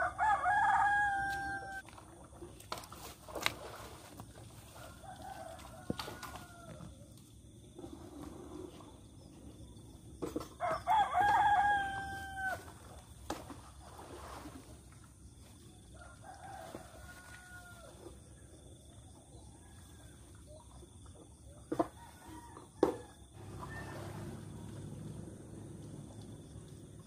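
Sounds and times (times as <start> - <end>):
distant rooster crowing: 0.0 - 1.8, 4.6 - 7.0, 10.6 - 12.7, 15.9 - 18.2, 21.8 - 25.7
rooster crowing: 0.0 - 1.8, 4.7 - 6.9, 10.6 - 12.7, 16.0 - 18.0, 22.0 - 25.2.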